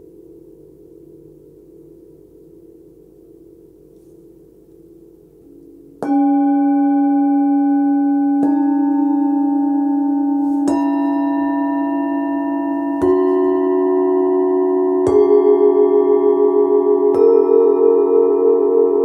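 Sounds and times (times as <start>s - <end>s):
singing bowls ringing: 0.0s - 19.0s
mallet striking bowl: 5.4s - 19.0s.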